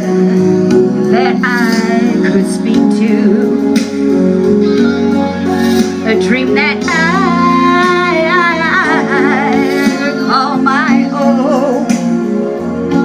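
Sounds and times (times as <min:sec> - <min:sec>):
instrumental accompaniment: 0:00.0 - 0:13.0
woman singing into a microphone: 0:01.0 - 0:03.8, 0:06.0 - 0:12.3.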